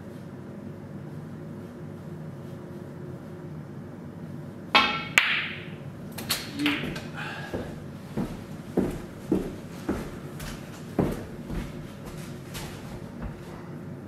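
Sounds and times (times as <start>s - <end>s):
snooker balls clacking: 4.8s - 5.8s, 6.4s - 7.2s.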